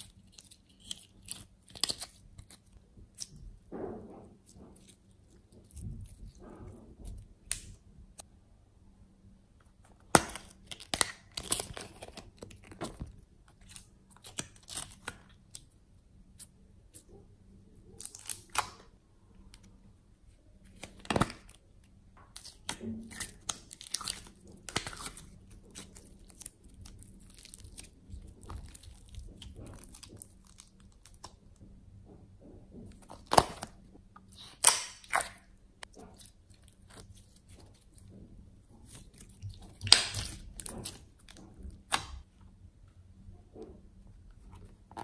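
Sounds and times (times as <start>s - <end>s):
slime squelching and popping: 9.9s - 15.6s, 22.2s - 31.5s, 32.9s - 38.1s, 38.8s - 42.3s.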